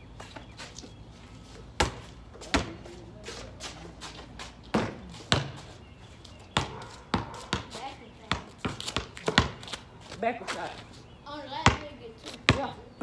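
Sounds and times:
basketball thudding: 1.8s - 2.8s, 4.7s - 5.7s, 6.6s - 9.7s, 11.6s - 12.7s.

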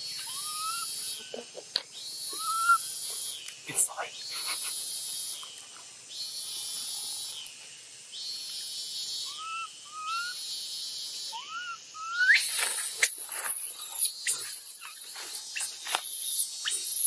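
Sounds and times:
insects droning: 0.0s - 17.0s
baby monkey whimpering and screaming: 0.2s - 1.2s, 2.4s - 2.8s, 9.3s - 10.4s, 11.3s - 15.8s.

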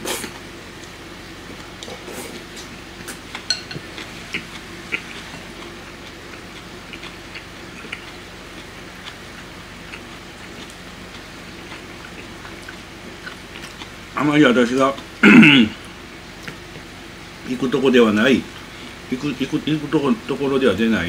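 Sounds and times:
man chewing noodles: 0.0s - 14.2s, 14.9s - 17.0s.

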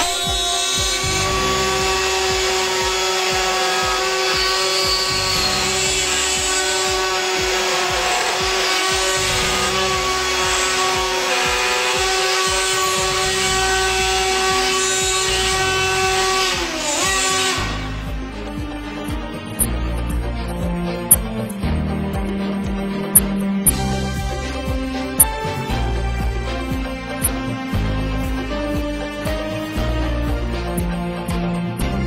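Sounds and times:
router high whine: 0.0s - 18.1s
router cutting wood: 0.0s - 31.1s.

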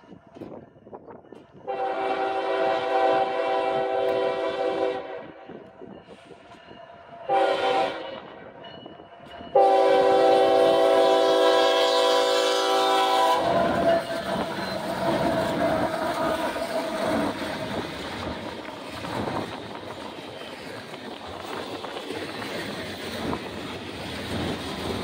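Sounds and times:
locomotive horn blast: 1.7s - 5.4s, 7.3s - 8.3s, 9.6s - 17.4s
train cars clattering on rails: 5.4s - 11.3s, 11.9s - 25.0s
locomotive engine passing: 9.2s - 25.0s.

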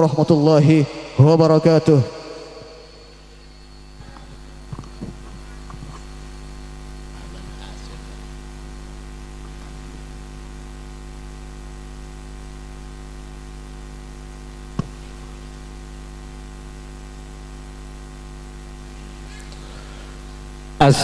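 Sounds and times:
electrical mains hum: 0.0s - 21.0s
sound system hiss: 0.0s - 21.0s.

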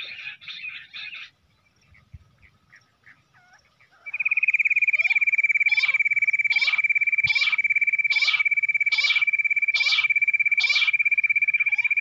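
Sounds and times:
electronic quail calls: 3.4s - 12.0s.

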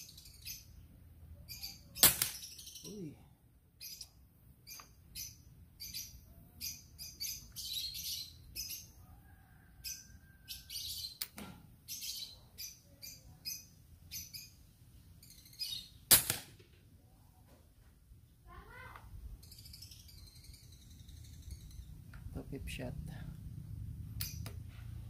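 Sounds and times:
birds chirping: 0.0s - 16.1s, 18.7s - 23.3s
air rifle shot: 2.0s - 2.5s, 16.1s - 16.7s.

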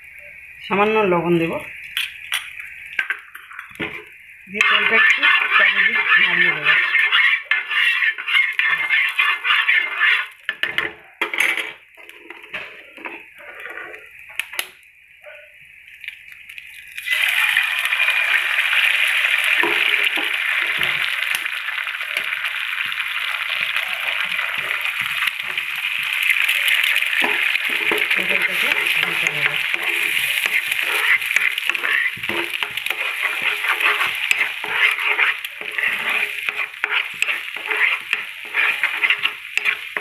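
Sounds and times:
eggs sizzling in hot oil: 0.0s - 15.1s, 15.7s - 40.0s
spoon scraping a frying pan: 3.0s - 14.1s, 19.4s - 21.4s, 23.6s - 40.0s.

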